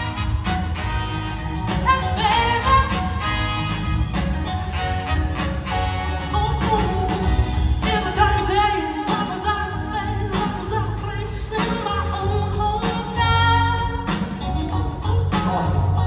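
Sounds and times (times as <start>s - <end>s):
live soul band playing: 0.0s - 16.0s
lead vocal singing: 6.3s - 14.2s.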